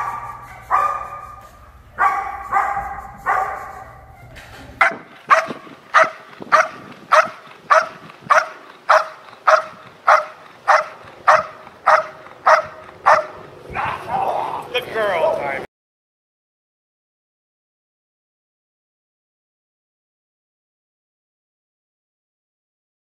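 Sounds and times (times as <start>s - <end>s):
dogs barking: 0.0s - 14.2s
low hum: 0.0s - 15.7s.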